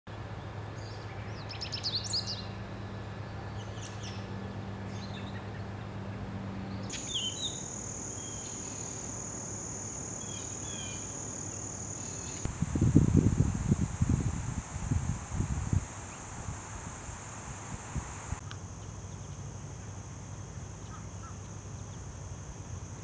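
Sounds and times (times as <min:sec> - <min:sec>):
faint bird chirps: 0:06.9 - 0:09.0
high insect drone: 0:06.9 - 0:23.0
low steady hum: 0:12.4 - 0:18.4.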